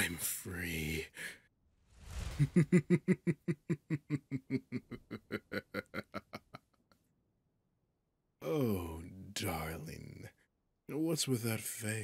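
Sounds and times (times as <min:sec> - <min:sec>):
man laughing: 0:02.3 - 0:07.0.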